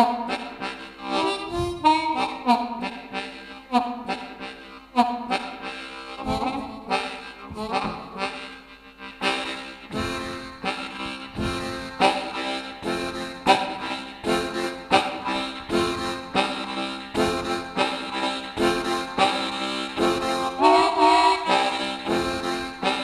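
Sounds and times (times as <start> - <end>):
harmonica train imitation chords: 0.0 - 23.0.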